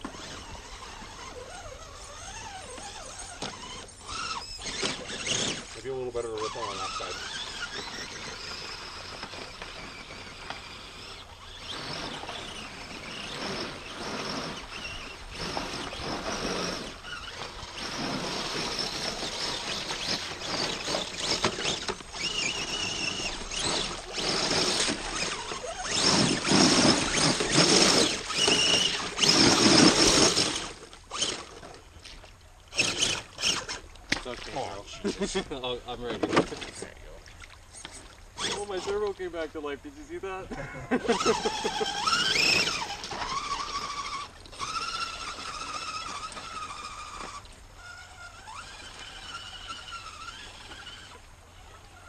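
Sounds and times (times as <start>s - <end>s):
electric motor whining: 0.0s - 31.8s, 32.7s - 34.2s, 37.7s - 52.0s
tyres splashing water over stones: 11.4s - 39.5s.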